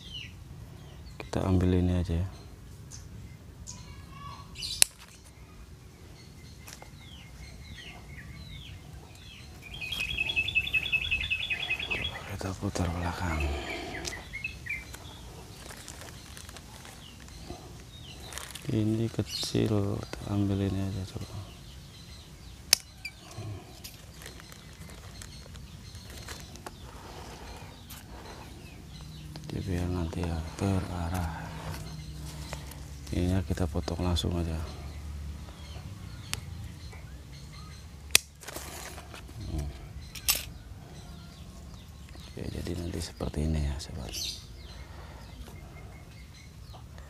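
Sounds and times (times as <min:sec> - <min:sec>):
leafy branches rustling: 0:03.7 - 0:36.8, 0:38.1 - 0:40.6
pruning shears clicking: 0:22.7 - 0:23.0, 0:38.1 - 0:38.6, 0:40.1 - 0:40.6
pruning shears snipping: 0:22.7 - 0:23.0, 0:38.1 - 0:39.1.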